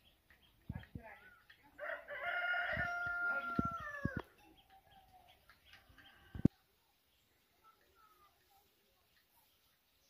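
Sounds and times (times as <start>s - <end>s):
rooster crowing: 1.8s - 4.2s.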